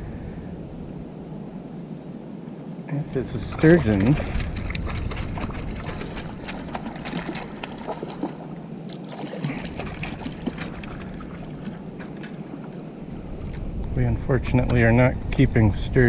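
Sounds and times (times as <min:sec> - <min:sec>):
water sloshing: 0:03.1 - 0:13.8
fish splashing at water surface: 0:03.4 - 0:13.6.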